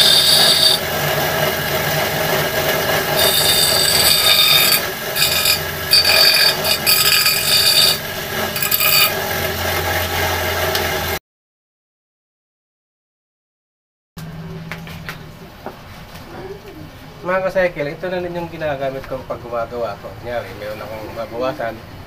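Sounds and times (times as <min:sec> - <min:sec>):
bench grinder grinding steel: 0:00.0 - 0:11.2
grinder motor humming: 0:00.0 - 0:11.2.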